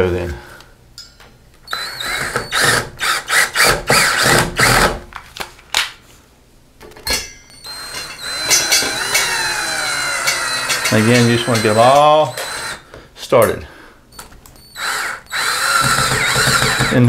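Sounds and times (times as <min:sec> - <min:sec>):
cordless drill driving screws: 0:01.7 - 0:04.9, 0:07.6 - 0:12.8, 0:14.6 - 0:17.0.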